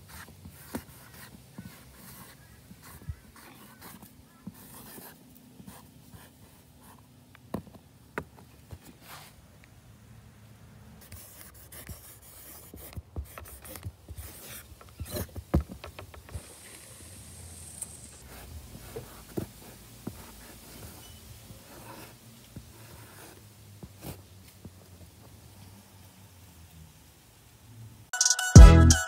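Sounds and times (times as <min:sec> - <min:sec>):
marker scraping on rough wall: 0:00.0 - 0:07.1, 0:11.0 - 0:24.3.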